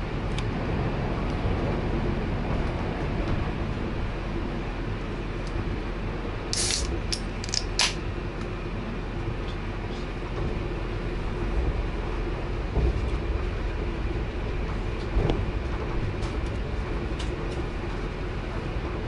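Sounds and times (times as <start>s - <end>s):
wheels rumbling on rails: 0.0s - 19.0s
short hissing bursts: 6.6s - 6.9s.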